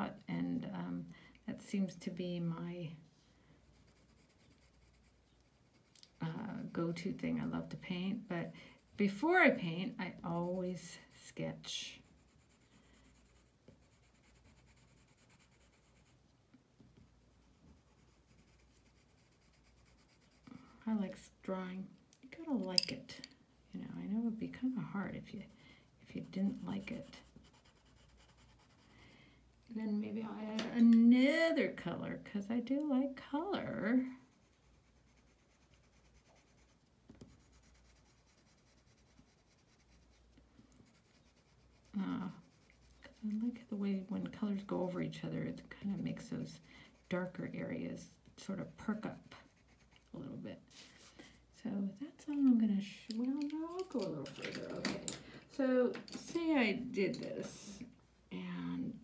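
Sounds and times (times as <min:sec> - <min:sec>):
pencil scratching on paper: 0:03.7 - 0:08.2, 0:08.8 - 0:11.1, 0:11.7 - 0:16.2, 0:17.2 - 0:20.7, 0:25.2 - 0:29.2, 0:33.8 - 0:50.3.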